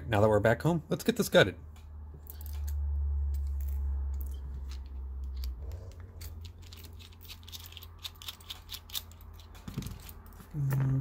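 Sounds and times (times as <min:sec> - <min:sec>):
low steady hum: 0:00.0 - 0:11.0
small metal clicks and scrapes: 0:02.2 - 0:10.5.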